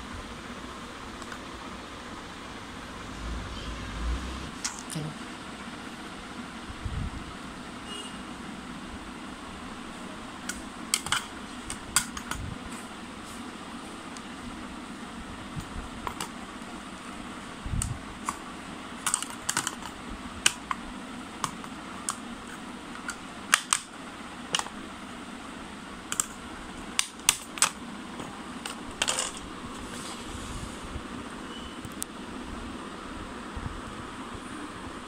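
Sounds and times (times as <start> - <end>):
steady background hum: 0.0 - 35.0
plastic case clicks and snaps: 23.0 - 23.9.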